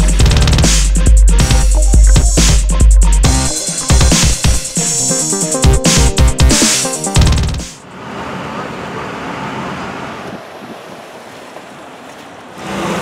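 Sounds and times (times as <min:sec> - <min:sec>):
car engine humming: 0:00.0 - 0:13.0.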